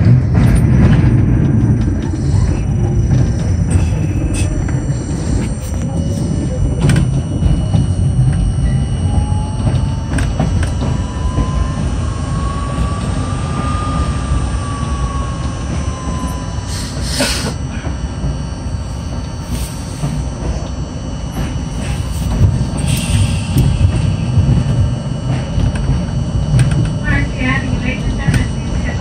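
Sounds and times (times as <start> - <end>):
subway train rumbling on tracks: 0.0 - 29.0
traction motor whine: 0.0 - 29.0.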